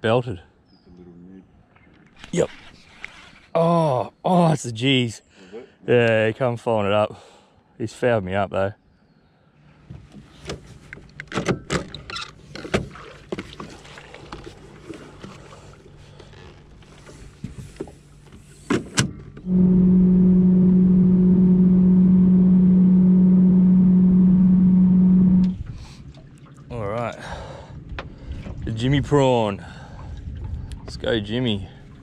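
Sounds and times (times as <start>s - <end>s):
boat motor droning: 13.0s - 30.5s.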